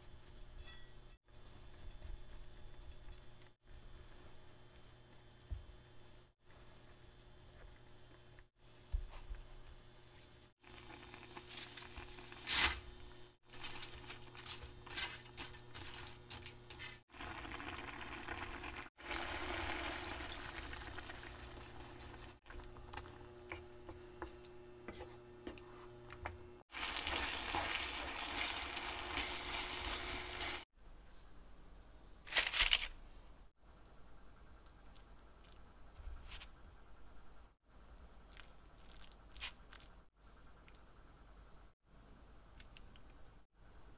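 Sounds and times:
bread tearing and crust crackling: 11.0s - 12.9s
food bubbling in frying pan: 17.1s - 23.2s.

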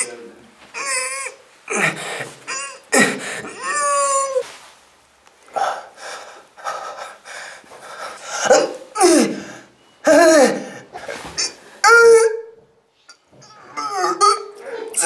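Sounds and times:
short forced breaths: 5.5s - 9.9s.

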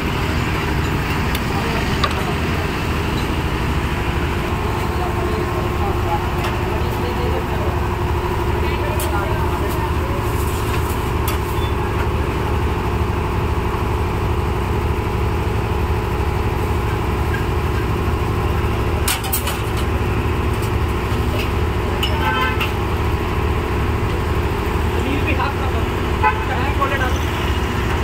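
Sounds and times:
road traffic noise: 0.0s - 28.0s
vehicle horn: 22.0s - 22.8s, 26.2s - 26.6s.

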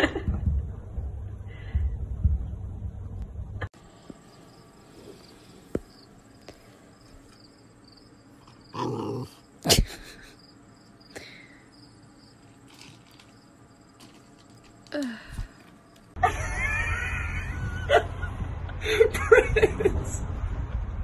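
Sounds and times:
puppies growling: 8.7s - 9.5s.

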